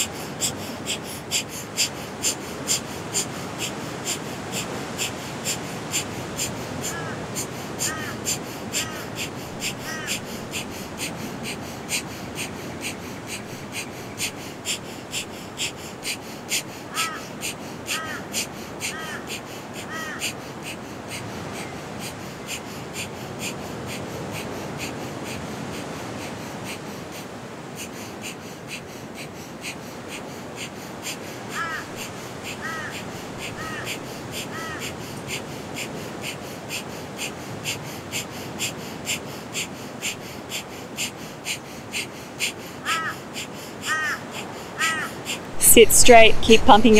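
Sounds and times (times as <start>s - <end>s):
rapid forceful nasal exhalations: 0.0s - 21.4s
bird calling: 6.4s - 11.6s, 16.9s - 21.8s, 31.5s - 35.0s, 42.8s - 43.2s, 43.8s - 45.5s.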